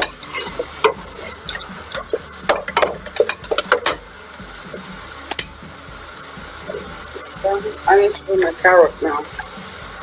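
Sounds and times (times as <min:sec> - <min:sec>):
wooden spoon scraping metal pot: 0:00.0 - 0:04.0.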